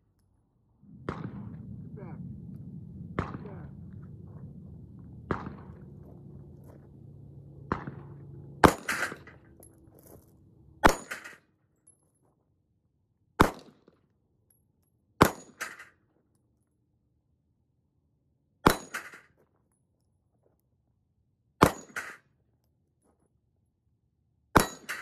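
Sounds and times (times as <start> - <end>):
pistol shots: 8.6 - 9.4, 10.8 - 11.4, 13.4 - 13.7.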